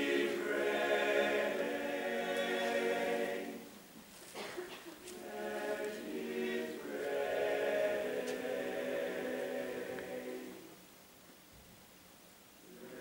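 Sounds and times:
male choir singing held chords: 0.0 - 3.7, 5.2 - 10.7, 12.6 - 13.0.

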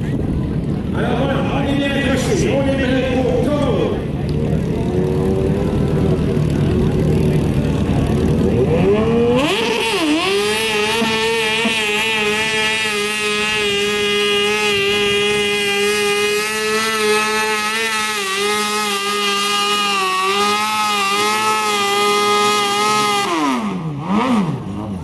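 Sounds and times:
garden tractor engine revving: 6.5 - 25.0.

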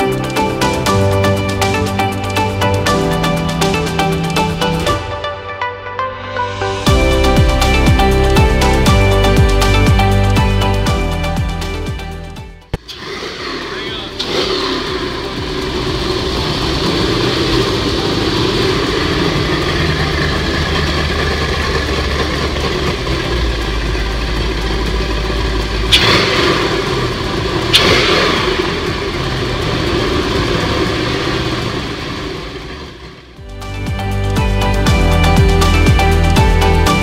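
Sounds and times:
car engine running: 0.0 - 37.0
short sharp sounds: 25.9 - 30.0.

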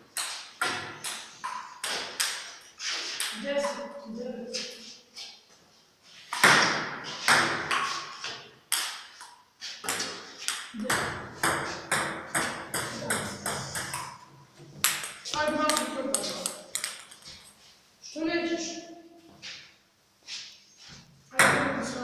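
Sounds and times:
table tennis ball clicks: 14.8 - 17.2.

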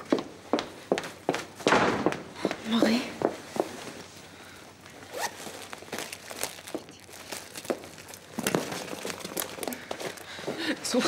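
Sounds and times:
rummaging rustling and crinkling: 4.8 - 11.0.

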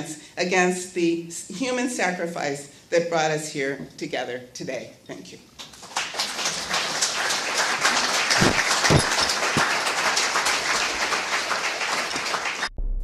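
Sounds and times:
audience applauding: 5.6 - 12.7.

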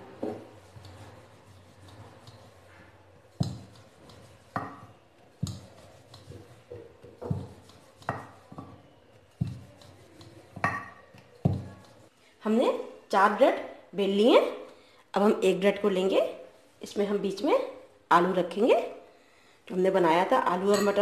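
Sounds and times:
rolling pin rubbing: 0.2 - 12.1.

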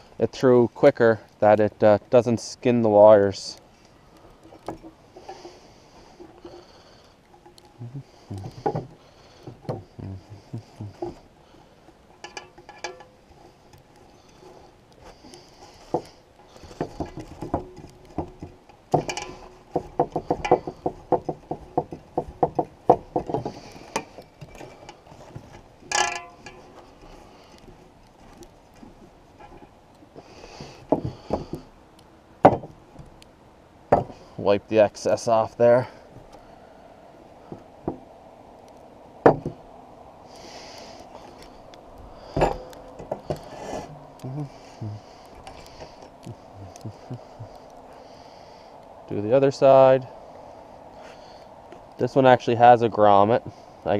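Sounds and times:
cord dragged across wooden table: 43.4 - 44.0.

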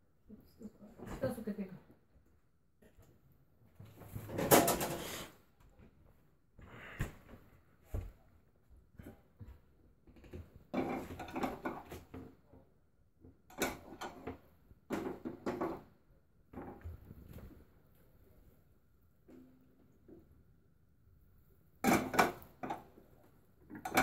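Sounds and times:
utensils and cookware clattering: 4.2 - 5.3, 10.7 - 12.1, 13.5 - 15.9, 21.8 - 22.9, 23.7 - 24.0.

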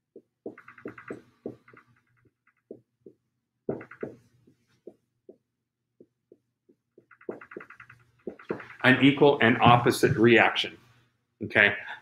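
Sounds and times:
marker writing on whiteboard: 0.0 - 10.4
marker squeaking: 0.2 - 2.9, 3.7 - 5.1, 6.0 - 9.8.

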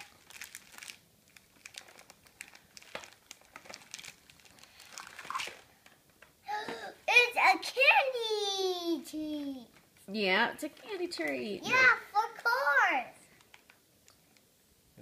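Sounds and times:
packaging crinkling and rustling: 0.0 - 6.3, 13.4 - 14.5.

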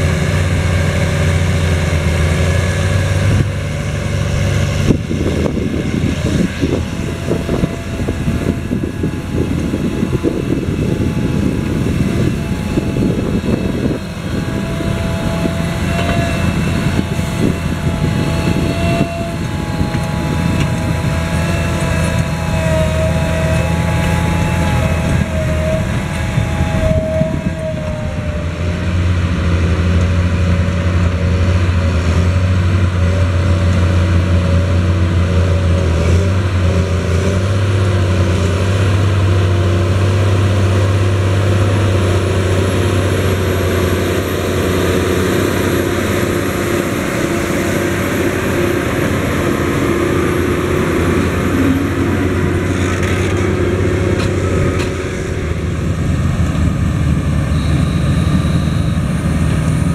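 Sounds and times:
tractor engine drone: 0.0 - 59.9
faint high whine: 55.2 - 59.9.

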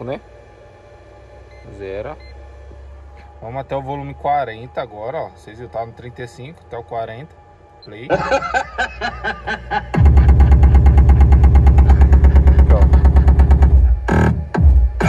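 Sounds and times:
loud bass-heavy car stereo music: 8.0 - 15.0
fast-pulsing bass line: 9.7 - 15.0.

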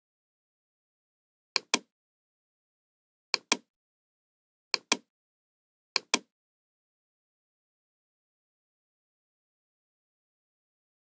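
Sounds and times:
computer mouse double clicks: 1.6 - 1.9, 3.4 - 3.7, 4.8 - 5.1, 6.0 - 6.3.

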